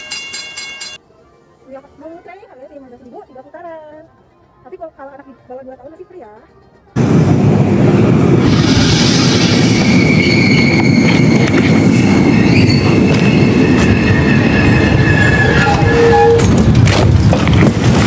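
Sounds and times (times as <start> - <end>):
rumble of wheels on rails: 2.0 - 18.0
high wheel squeal: 8.4 - 16.6.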